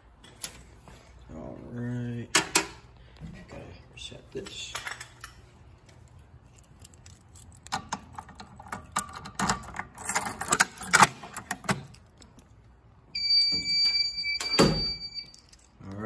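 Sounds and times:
keys jangling and clicking: 4.4s - 12.6s, 14.3s - 16.0s
high-pitched electronic alarm tone: 13.2s - 15.4s.

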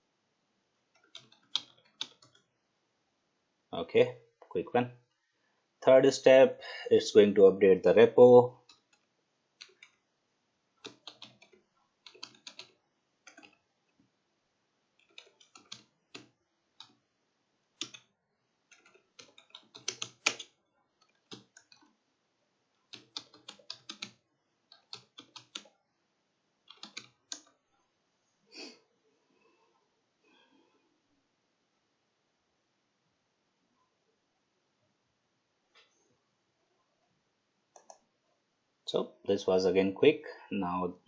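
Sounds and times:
keyboard keys clicking: 0.9s - 2.4s, 10.8s - 13.6s, 15.0s - 17.0s, 17.8s - 18.0s, 18.7s - 21.9s, 22.9s - 25.7s, 26.7s - 27.6s.

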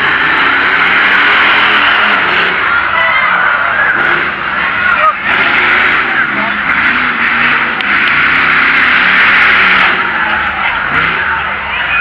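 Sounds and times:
truck engine running loud: 0.0s - 12.0s.

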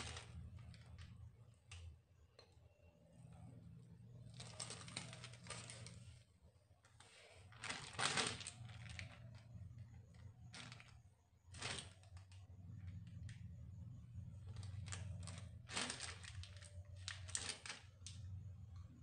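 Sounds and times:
plastic sheet crinkling: 0.0s - 1.2s, 4.3s - 6.2s, 7.0s - 9.6s, 10.5s - 12.4s, 14.4s - 18.3s
low steady hum: 0.0s - 19.0s.

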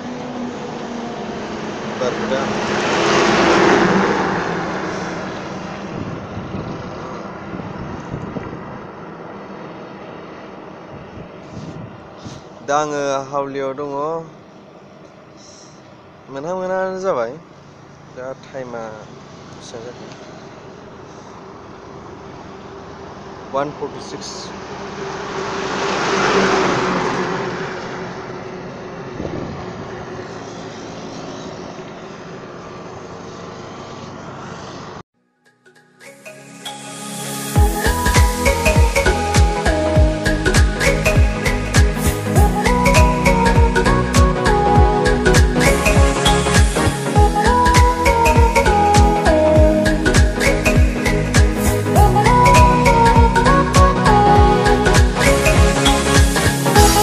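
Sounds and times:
vehicle passing by: 0.0s - 35.0s
low road noise: 0.0s - 35.1s, 36.6s - 57.0s.

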